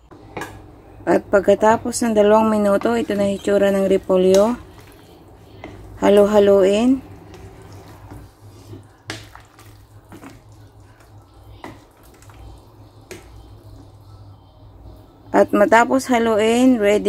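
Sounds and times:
low steady hum: 0.0 - 17.0
liquid sloshing: 2.5 - 13.9.

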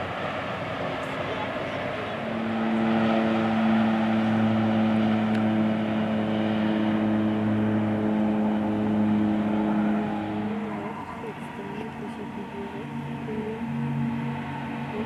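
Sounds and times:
propeller aircraft drone: 0.0 - 15.0.

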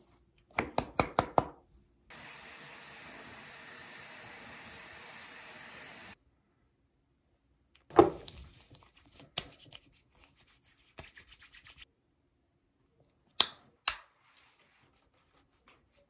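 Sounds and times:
hands rubbing: 8.4 - 11.8.

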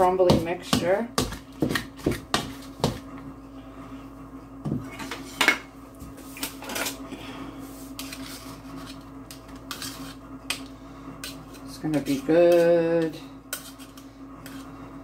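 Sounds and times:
steady low hum: 0.0 - 15.0
pastry blender scraping a bowl: 7.8 - 15.0.

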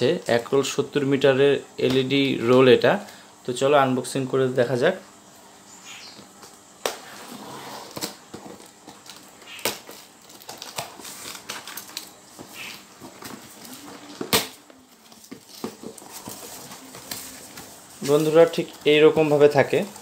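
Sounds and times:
cardboard rustling and scraping: 7.0 - 20.0
packing tape crackling: 7.8 - 20.0.

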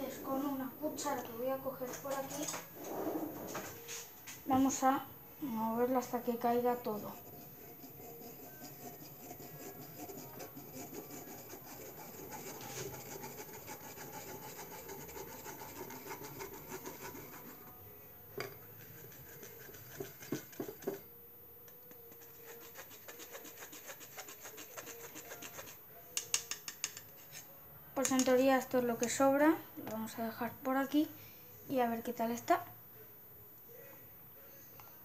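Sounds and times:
spoon scraping pulp in a strainer: 6.9 - 17.7, 18.6 - 21.0, 22.0 - 25.8
spoon clicking against strainer: 26.2 - 27.1.

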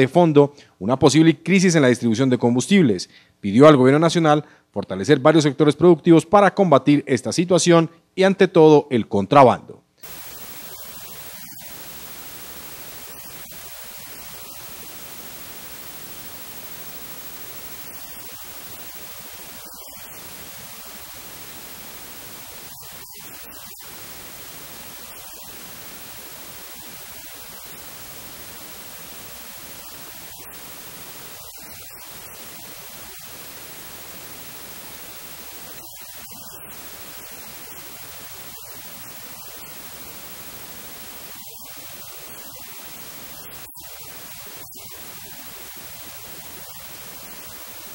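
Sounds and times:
static hiss: 10.0 - 47.9.

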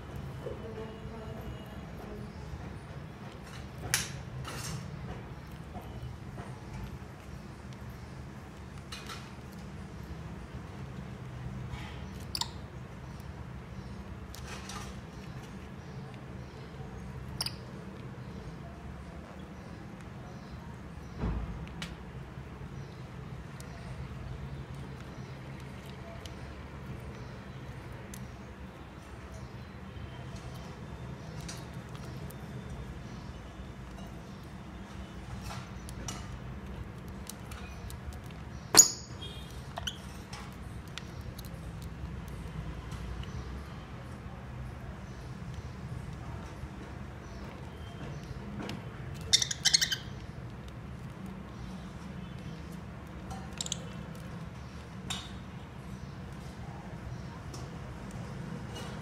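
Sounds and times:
birds squeaking: 11.7 - 21.4, 22.7 - 41.8, 47.0 - 56.4.

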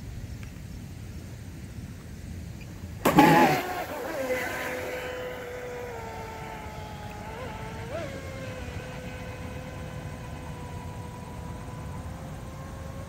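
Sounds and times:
electric boat motor whine: 3.0 - 13.0.

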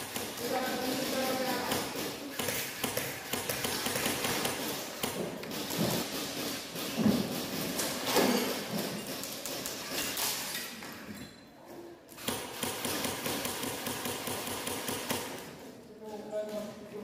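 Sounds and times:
airsoft rifles firing bursts: 0.0 - 7.8, 12.2 - 15.5.

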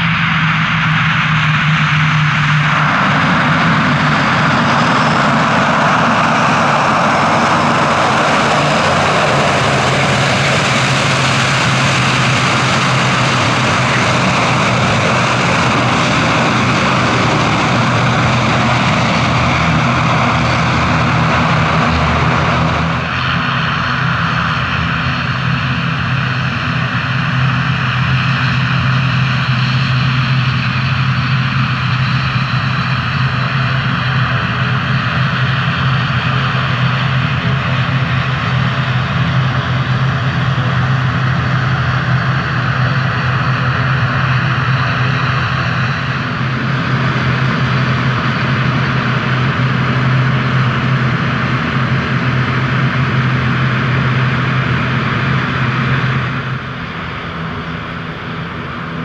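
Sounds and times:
high engine whine: 0.0 - 59.0
low propeller hum: 0.0 - 59.0
broad rushing noise: 1.9 - 25.7.

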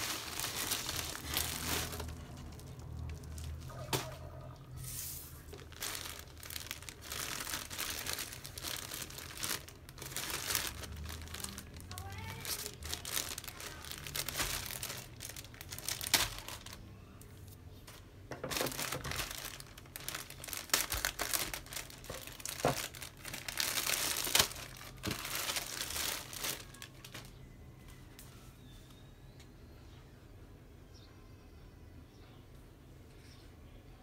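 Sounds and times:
plastic bag crinkling: 0.0 - 16.9, 17.8 - 27.5.

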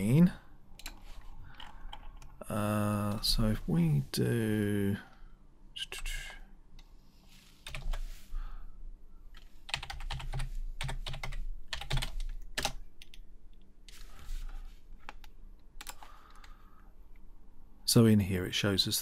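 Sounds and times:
typing on computer keyboard: 0.8 - 2.4, 7.7 - 8.0, 9.7 - 13.2, 15.1 - 16.5.

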